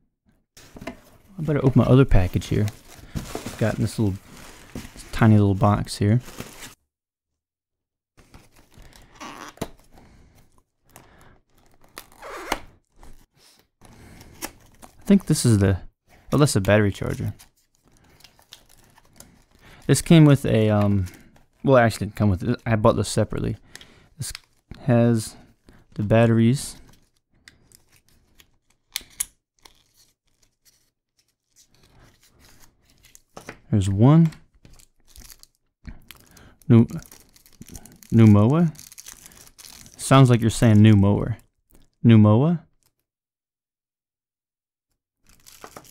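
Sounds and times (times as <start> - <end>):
cardboard flaps scraping and rustling: 2.5 - 5.2.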